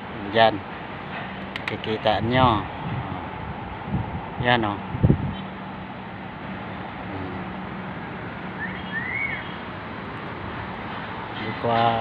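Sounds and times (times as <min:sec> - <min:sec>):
distant traffic: 0:00.0 - 0:12.0
wind on microphone: 0:02.1 - 0:05.5.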